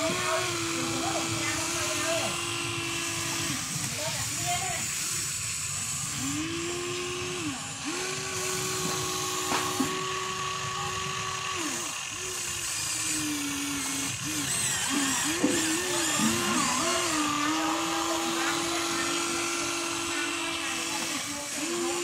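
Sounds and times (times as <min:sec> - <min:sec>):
electric motors whining: 0:00.0 - 0:22.0.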